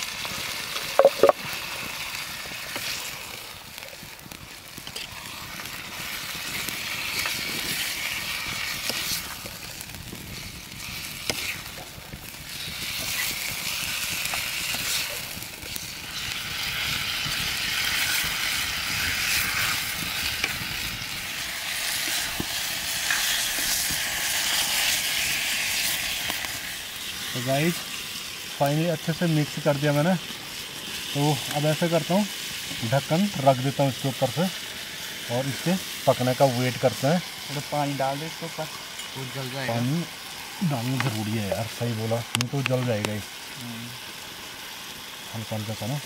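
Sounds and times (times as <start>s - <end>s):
chicken sizzling in hot oil: 0.0s - 46.0s
spoon scraping and clicking: 1.0s - 1.4s.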